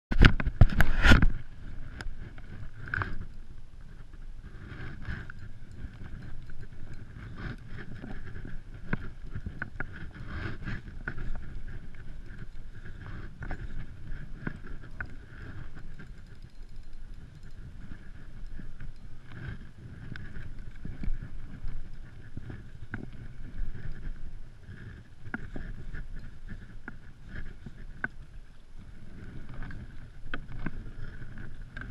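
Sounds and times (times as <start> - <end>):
wind noise on microphone: 0.1 - 31.9
fishing reel winding: 4.5 - 28.3.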